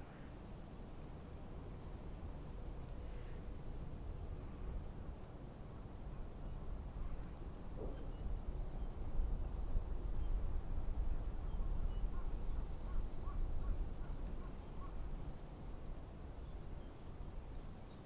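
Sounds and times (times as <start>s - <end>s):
distant bird calls: 11.4s - 15.7s.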